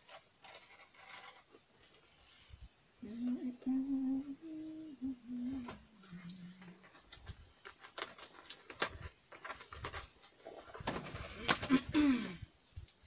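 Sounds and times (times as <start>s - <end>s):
cricket trill: 0.0s - 13.0s
person humming: 3.0s - 6.9s
paper wrapping crackling: 6.2s - 11.8s.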